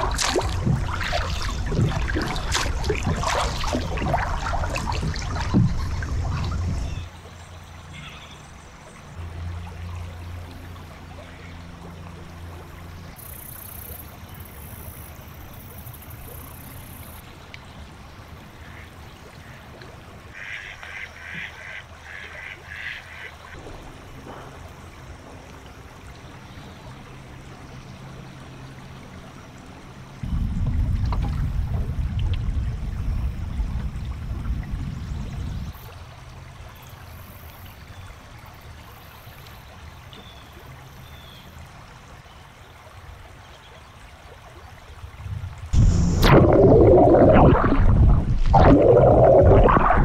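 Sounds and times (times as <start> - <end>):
steady low rumble: 0.0 - 7.1, 30.2 - 35.8, 45.2 - 50.0.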